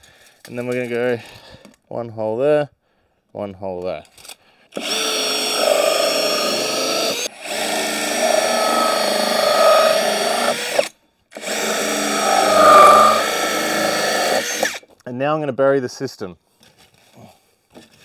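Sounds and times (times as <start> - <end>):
power drill cutting plastic gutter: 4.7 - 14.8.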